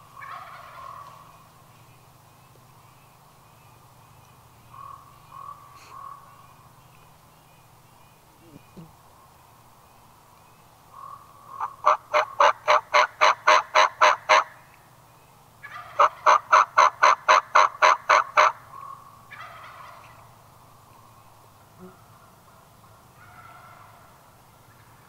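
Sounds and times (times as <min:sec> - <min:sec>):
turkey yelping: 0:00.2 - 0:01.1, 0:11.0 - 0:14.5, 0:15.6 - 0:20.2, 0:23.2 - 0:24.1.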